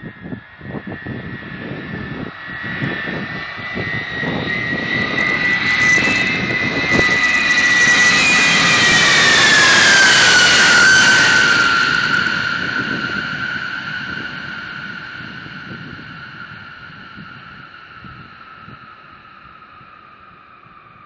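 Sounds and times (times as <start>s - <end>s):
jet aircraft passing overhead: 0.0s - 21.0s.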